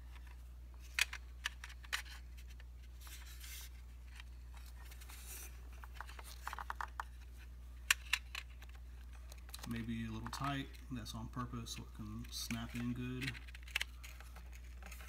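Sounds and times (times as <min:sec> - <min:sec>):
rustling scrapes: 0:02.2 - 0:06.6.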